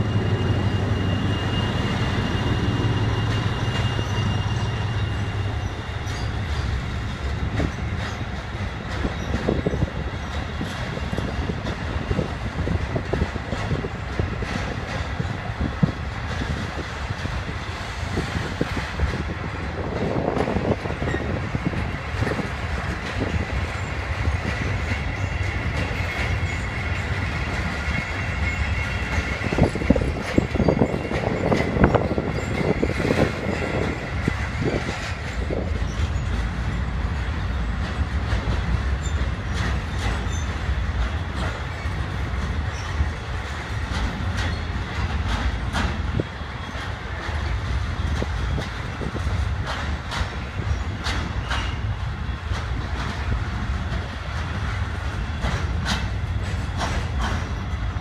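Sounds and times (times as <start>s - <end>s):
high wheel squeal: 0.0s - 11.2s
clickety-clack over rail joints: 0.0s - 58.0s
train wheels rumbling on rail: 0.0s - 58.0s.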